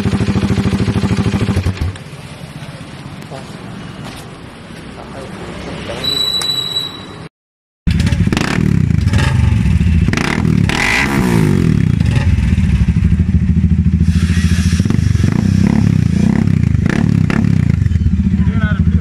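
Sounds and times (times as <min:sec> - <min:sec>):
motorcycle engine idling: 0:00.0 - 0:03.0, 0:07.9 - 0:10.2, 0:11.9 - 0:16.8, 0:17.6 - 0:19.0.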